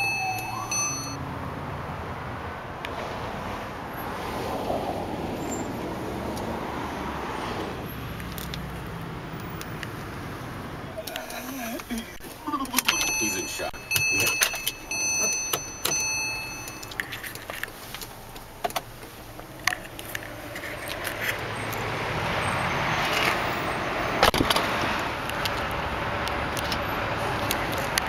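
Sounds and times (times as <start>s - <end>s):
electronic warning chime: 0.0s - 1.2s, 12.8s - 17.1s
keys jingling: 0.0s - 1.2s, 12.6s - 18.0s
outdoor noise: 0.0s - 28.0s.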